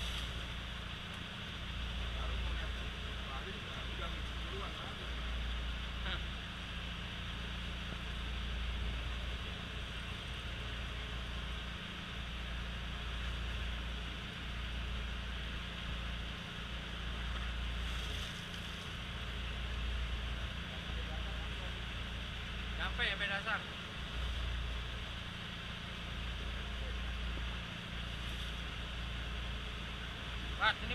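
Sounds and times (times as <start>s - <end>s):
wind and water hiss: 0.0s - 2.0s
boat engine rumbling: 0.0s - 30.9s.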